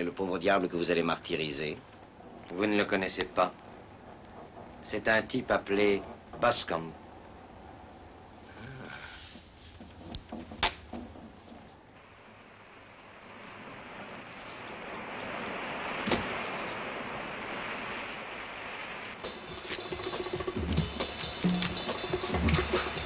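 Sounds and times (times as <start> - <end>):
insect chirping: 1.1 - 23.0
knocks: 9.8 - 11.7
surf washing on rocky shore: 12.0 - 20.5.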